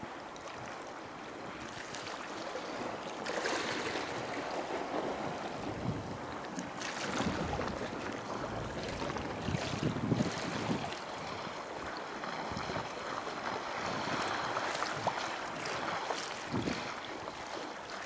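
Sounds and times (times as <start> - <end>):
sea water sloshing: 0.0 - 18.0
wind rushing over microphone: 5.0 - 6.4, 7.0 - 11.5, 16.5 - 16.9.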